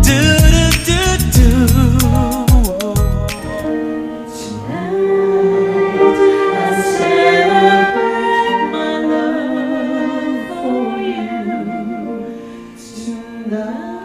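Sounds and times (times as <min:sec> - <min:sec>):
person singing slow melody: 0:00.0 - 0:14.0
piano: 0:00.0 - 0:14.0
flute: 0:03.5 - 0:14.0
violin: 0:03.5 - 0:14.0.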